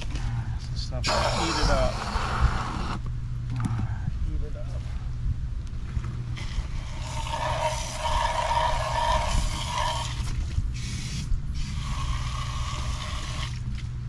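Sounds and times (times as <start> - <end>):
hose-end sprayer hissing: 1.0 - 3.0, 6.4 - 13.6.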